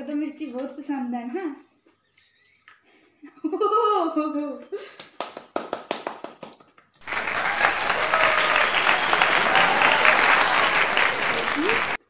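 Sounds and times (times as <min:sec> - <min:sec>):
sharp hand claps: 0:05.0 - 0:12.0
recorded crowd applause: 0:05.2 - 0:12.0.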